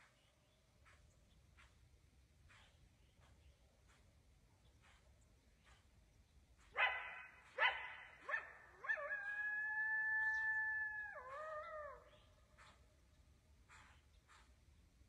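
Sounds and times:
coyote barking and yelping: 6.6 - 12.8
coyote howling: 8.3 - 12.3.

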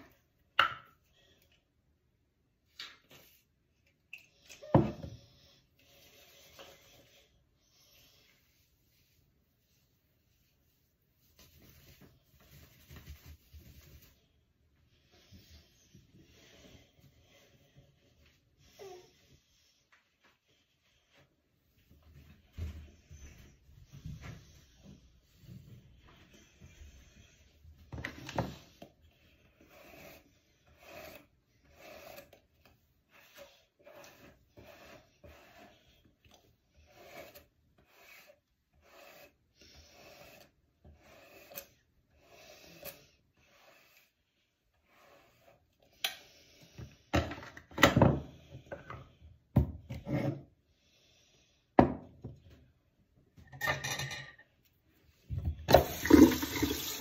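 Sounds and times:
rubbing and handling noises: 5.7 - 14.6.

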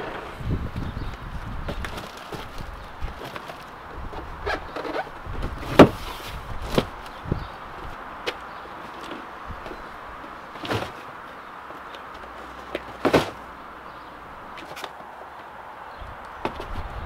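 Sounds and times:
cardboard boxes knocking: 5.4 - 6.0, 12.8 - 13.5.

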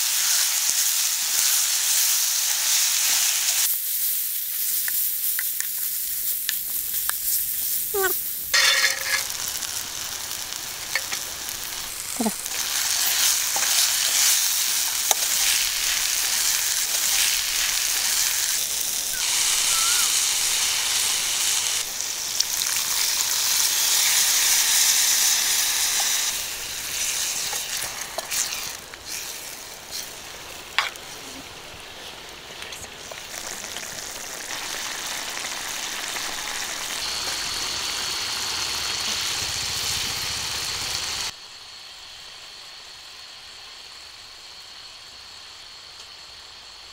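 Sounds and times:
curry sizzling in a wok: 0.0 - 46.9
spoon scraping a pan: 8.6 - 9.4.

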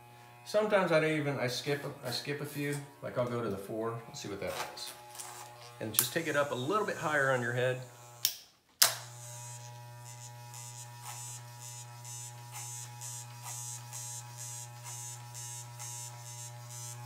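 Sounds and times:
electric hair clippers humming: 0.0 - 17.0
faint rasp of clippers: 4.4 - 6.1, 9.0 - 17.0
hair clipper clicks: 4.8 - 17.0.

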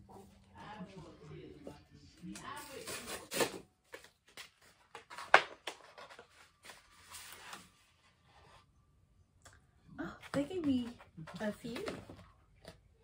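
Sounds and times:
envelope and paper rustling: 2.5 - 8.6.

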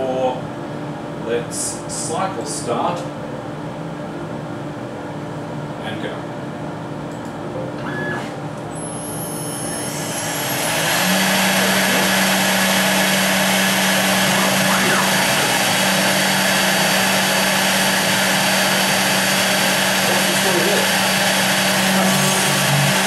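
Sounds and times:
router spindle whine: 7.8 - 23.0
dust extraction rushing: 9.9 - 23.0.

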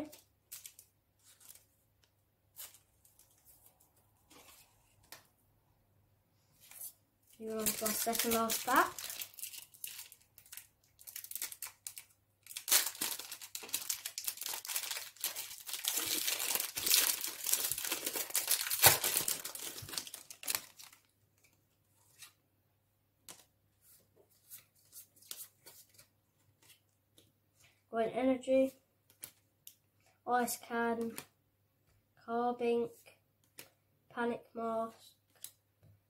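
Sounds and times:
foil wrapper crinkling and tearing: 7.5 - 21.1
faint clicks of cards handled: 33.4 - 33.8.

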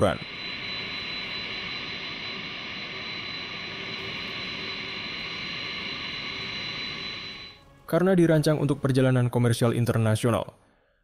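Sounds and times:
jet engines running with whine: 0.0 - 7.6.

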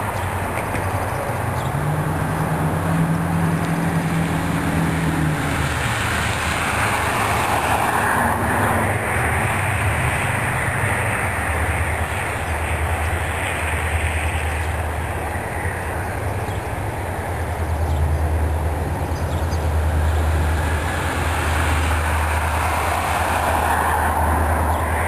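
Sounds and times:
diesel locomotive engine hum: 0.0 - 25.0
rushing noise: 0.0 - 25.0.

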